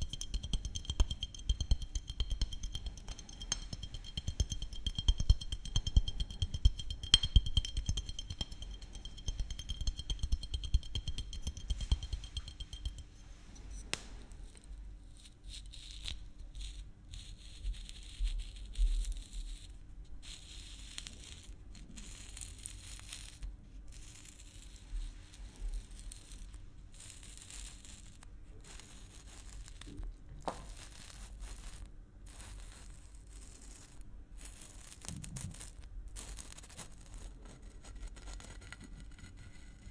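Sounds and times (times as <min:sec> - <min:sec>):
fingernails tapping on glass bottle: 0:00.0 - 0:13.2.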